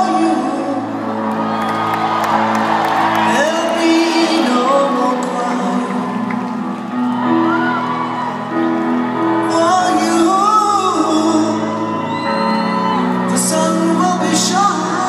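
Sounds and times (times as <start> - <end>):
piano: 0.0 - 15.0
crowd shouting and whooping: 1.0 - 13.8
woman singing: 3.3 - 6.5.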